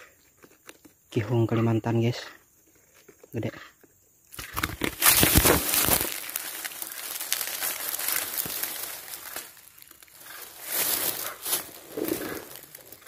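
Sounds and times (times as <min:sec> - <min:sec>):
crinkling and rubbing on microphone: 0:04.4 - 0:13.0.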